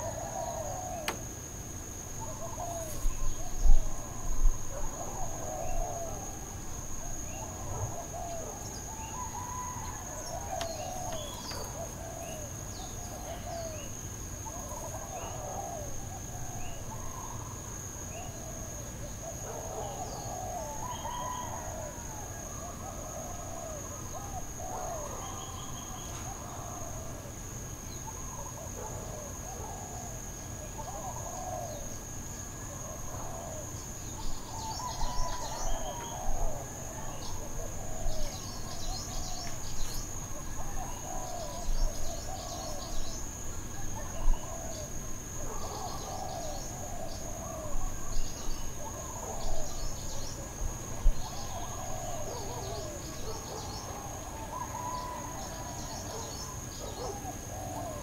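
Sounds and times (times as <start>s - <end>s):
high insect drone: 0.0s - 58.0s
birds calling: 7.4s - 15.9s.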